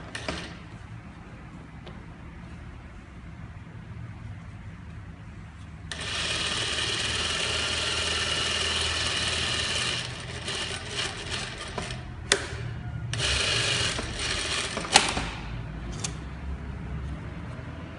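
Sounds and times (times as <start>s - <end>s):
sewing machine stitching: 5.9s - 12.5s, 13.1s - 15.4s.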